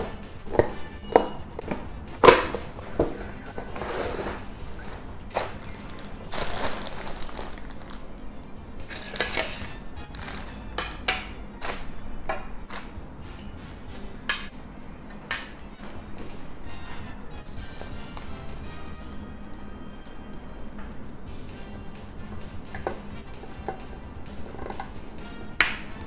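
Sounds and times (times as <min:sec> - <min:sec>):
plastic bag crinkling: 0:04.6 - 0:10.5, 0:17.4 - 0:18.6.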